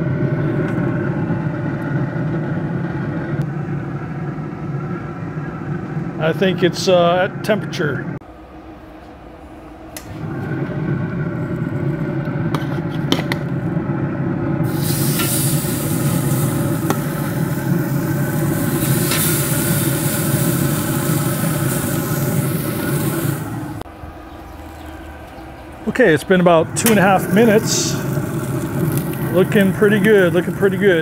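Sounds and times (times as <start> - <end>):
low steady rumble: 0.0 - 31.0
steaks sizzling on a griddle: 14.7 - 23.4.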